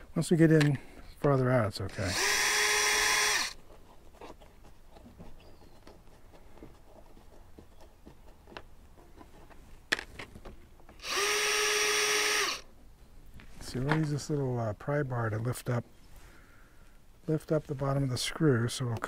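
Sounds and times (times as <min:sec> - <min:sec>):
cordless drill running: 0:02.0 - 0:03.6, 0:11.0 - 0:12.6.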